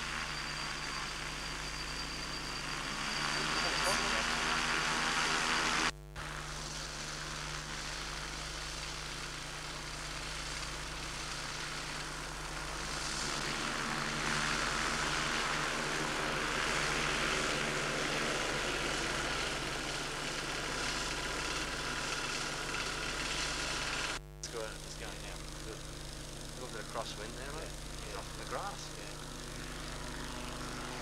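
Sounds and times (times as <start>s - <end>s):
ultralight aircraft engine and propeller: 0.0s - 31.0s.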